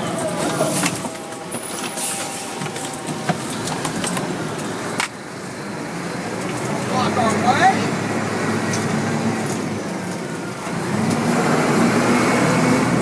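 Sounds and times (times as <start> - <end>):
fire engine engine drone: 0.0 - 13.0.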